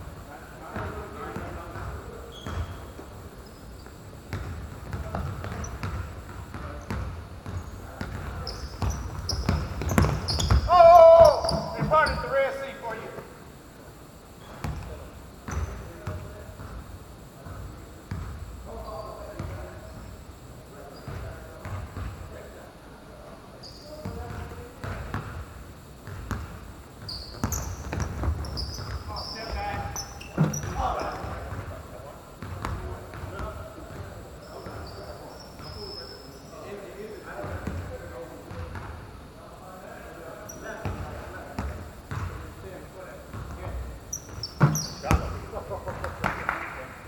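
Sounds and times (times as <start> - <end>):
basketball bouncing on court: 3.8 - 12.2, 14.6 - 16.8, 17.4 - 18.4, 24.0 - 31.8, 32.4 - 34.8, 40.8 - 42.4, 43.3 - 46.5
high-pitched shoe squeaks: 8.4 - 12.3.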